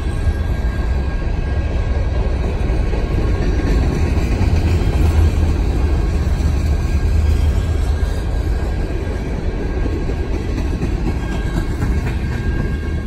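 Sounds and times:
train wheels rumbling and clattering: 0.0s - 13.0s.

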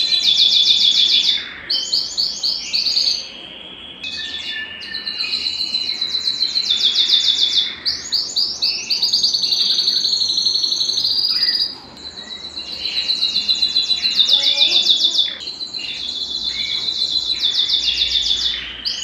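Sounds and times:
canary singing trills: 0.0s - 19.0s.

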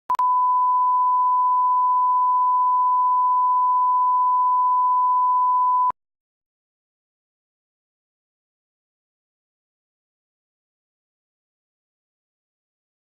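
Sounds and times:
steady sine test tone: 0.1s - 5.9s.

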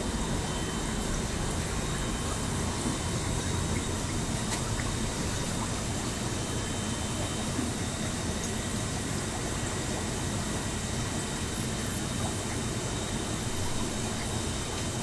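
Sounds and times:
faint high whines: 0.0s - 7.7s
aquarium equipment humming: 0.0s - 15.0s.

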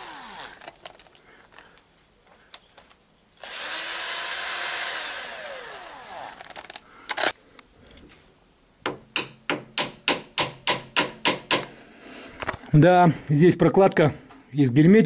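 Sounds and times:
cordless drill running: 0.0s - 0.8s, 3.4s - 6.6s.

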